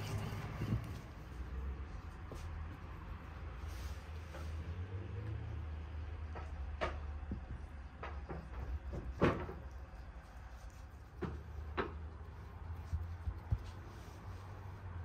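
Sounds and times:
objects knocking and clunking: 0:06.0 - 0:10.1, 0:11.0 - 0:12.3.

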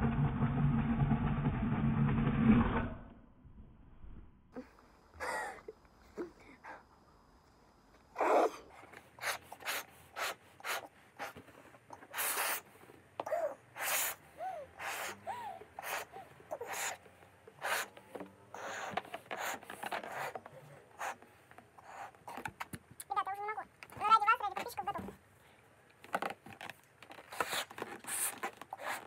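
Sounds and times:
breaths in: 0:04.6 - 0:07.0, 0:12.0 - 0:17.0
puffs of air into balloon: 0:08.1 - 0:22.5, 0:27.1 - 0:29.0
balloon squeaks: 0:09.2 - 0:11.4, 0:12.0 - 0:12.7, 0:13.3 - 0:14.2, 0:14.8 - 0:21.2, 0:26.1 - 0:29.0.

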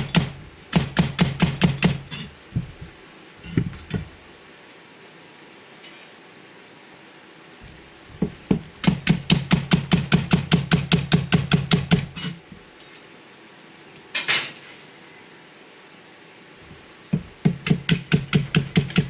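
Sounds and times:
cleaver chopping green onion: 0:17.2 - 0:19.0.

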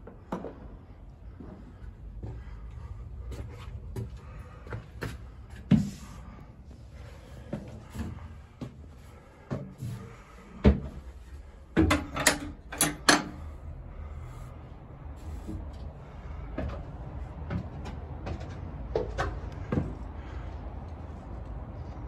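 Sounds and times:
footsteps on wooden stairs: 0:00.0 - 0:12.1, 0:15.2 - 0:20.7
open-air background noise: 0:00.0 - 0:22.0.

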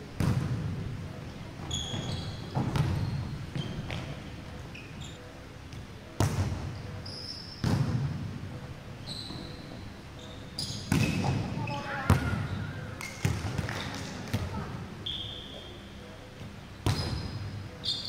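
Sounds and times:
volleyball hits ringing in hall: 0:10.8 - 0:14.6.

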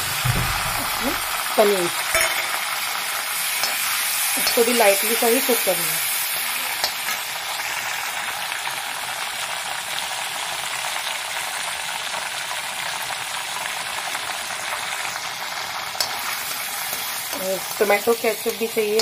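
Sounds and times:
vegetables sizzling in oil: 0:00.0 - 0:19.0
steel spoon stirring: 0:03.4 - 0:05.3.

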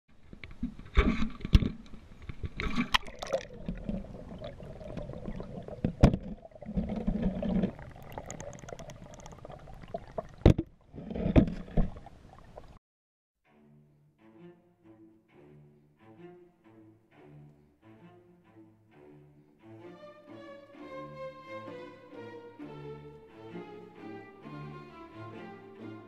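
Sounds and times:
water splashing and gurgling: 0:00.4 - 0:12.8.

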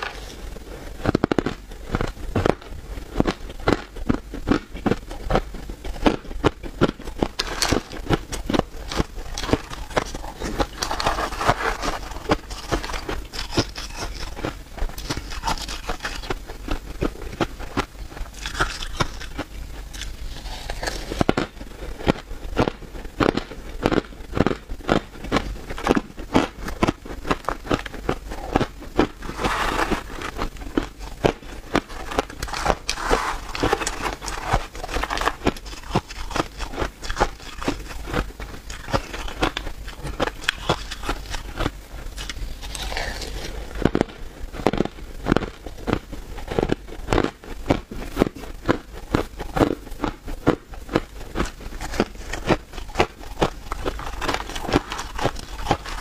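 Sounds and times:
ice being chewed: 0:01.0 - 0:56.0.

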